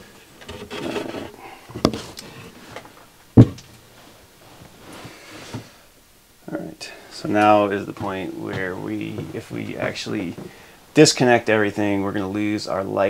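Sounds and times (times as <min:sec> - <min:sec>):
rustling: 0:00.0 - 0:05.8, 0:07.1 - 0:10.8.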